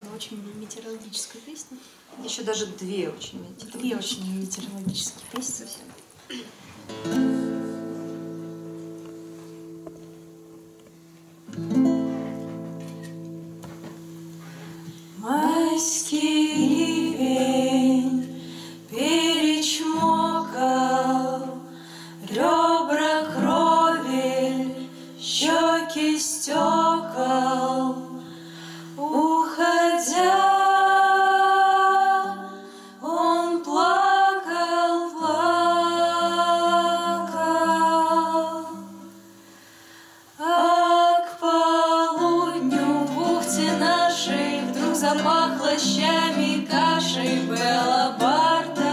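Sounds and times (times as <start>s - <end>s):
acoustic guitar: 2.0s - 48.9s
women singing in harmony: 15.2s - 39.4s, 40.4s - 48.9s.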